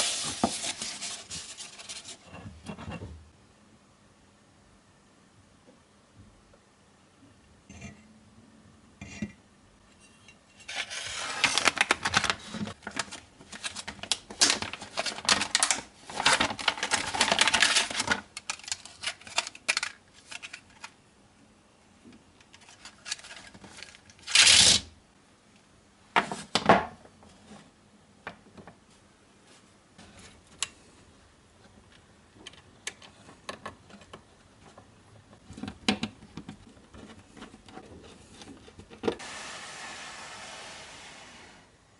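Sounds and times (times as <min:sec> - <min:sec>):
packaging rustling: 0:00.0 - 0:02.2, 0:10.7 - 0:20.9.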